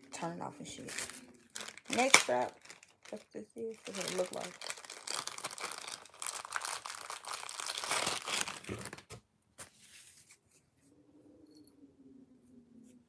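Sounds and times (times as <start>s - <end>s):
plastic packaging crinkling and tearing: 0.7s - 9.2s.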